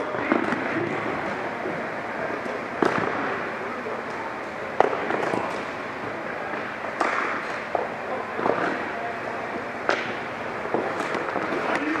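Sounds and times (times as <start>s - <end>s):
hockey sticks clacking on ball: 6.5s - 8.8s, 9.9s - 12.0s.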